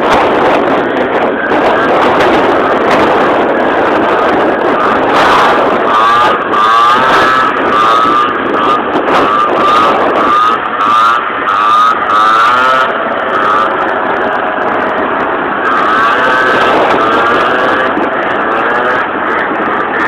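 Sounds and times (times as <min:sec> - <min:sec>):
motorbike engine revving: 0:00.0 - 0:20.0.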